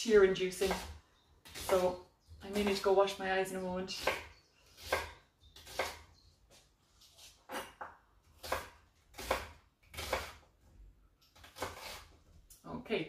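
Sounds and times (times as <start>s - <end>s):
knife chopping onion on wooden board: 0.6s - 2.9s, 4.0s - 6.1s, 7.5s - 10.4s.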